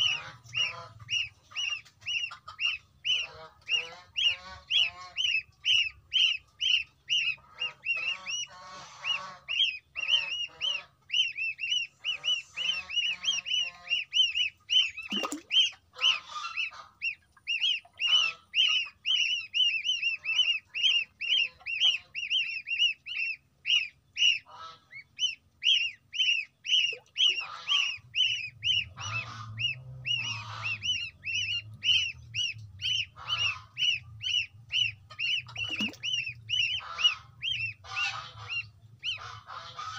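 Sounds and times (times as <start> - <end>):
goslings peeping: 0.0 - 39.9
soft low chick chirps: 0.0 - 39.9.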